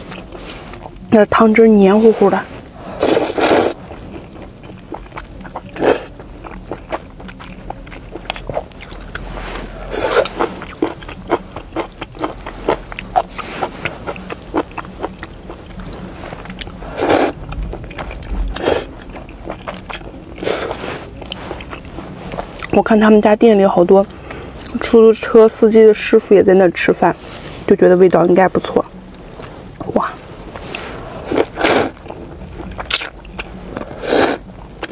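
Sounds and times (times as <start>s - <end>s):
soft wet chewing: 0.0s - 1.2s, 1.9s - 25.0s, 28.8s - 34.9s
person slurping noodles: 2.7s - 4.0s, 5.0s - 6.2s, 9.2s - 11.0s, 16.3s - 19.0s, 20.4s - 21.2s, 30.6s - 32.2s, 33.8s - 34.5s.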